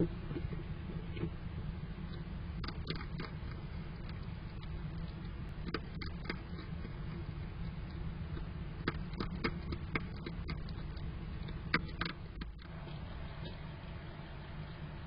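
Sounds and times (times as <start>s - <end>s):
hedgehog crunching kibble: 2.0s - 13.7s.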